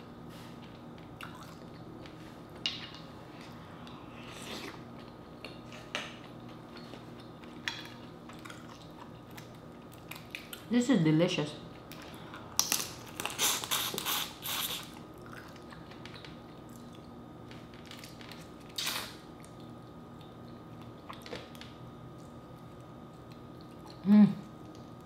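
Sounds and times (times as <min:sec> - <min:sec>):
sucking and cracking crawfish: 0:11.9 - 0:19.9
person humming: 0:24.0 - 0:24.4.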